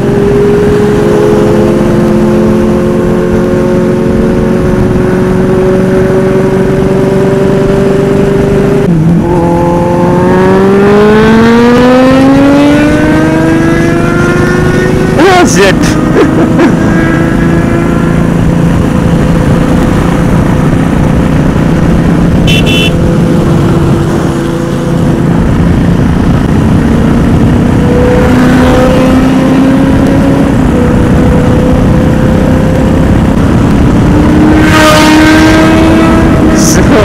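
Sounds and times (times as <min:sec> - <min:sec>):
wind rush on microphone: 0:00.0 - 0:37.0
motorcycle engine running: 0:13.1 - 0:37.0
short high beep: 0:22.5 - 0:23.0.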